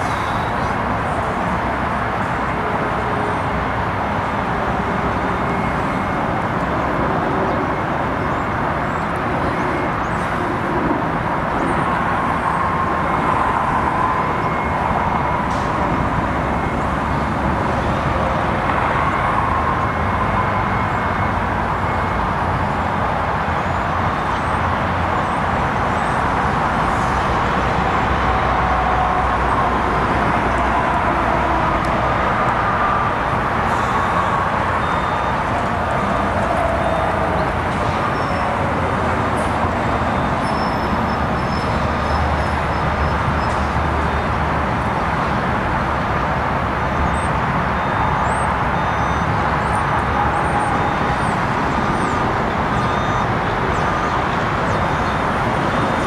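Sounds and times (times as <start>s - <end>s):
road traffic rumble: 0.0s - 56.0s.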